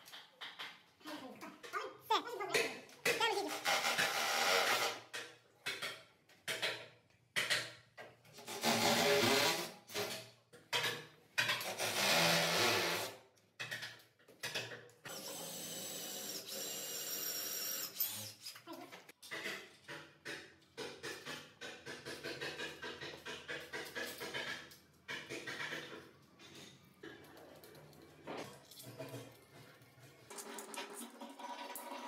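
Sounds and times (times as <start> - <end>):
rotary hammer drilling into wall: 3.5 - 5.1, 8.4 - 10.2, 11.5 - 13.2, 15.1 - 18.6.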